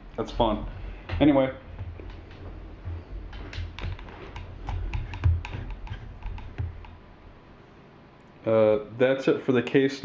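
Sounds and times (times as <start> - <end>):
dull knocks on metal case: 3.3 - 7.0.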